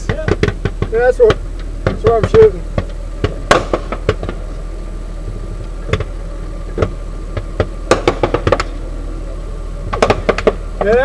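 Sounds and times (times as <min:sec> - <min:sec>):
armoured vehicle idling: 0:00.0 - 0:11.0
gunfire cracks: 0:03.2 - 0:04.4, 0:07.9 - 0:08.7, 0:10.0 - 0:10.6.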